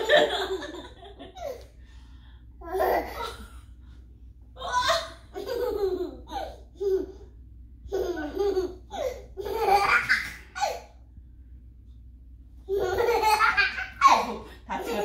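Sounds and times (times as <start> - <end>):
toddler laughing: 4.6 - 7.2, 12.7 - 15.0.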